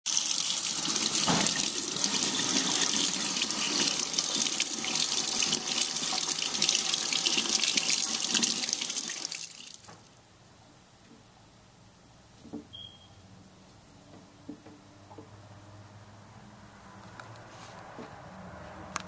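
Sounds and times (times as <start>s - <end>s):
faucet running into steel sink: 0.1s - 10.0s.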